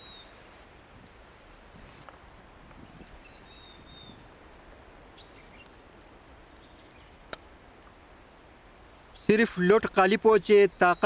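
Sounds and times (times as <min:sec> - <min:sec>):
faint outdoor ambience: 0:00.0 - 0:11.0.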